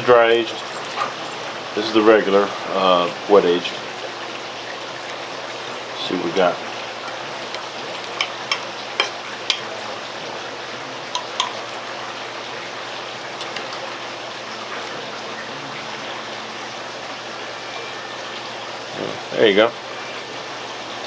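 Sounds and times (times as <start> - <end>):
cutlery scraping a ceramic plate: 7.6 - 9.7.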